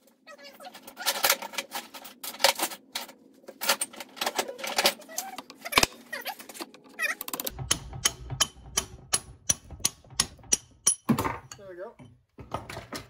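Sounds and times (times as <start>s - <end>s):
metallic clicks and squeaks: 0.3s - 8.8s
low rumble: 7.5s - 10.7s.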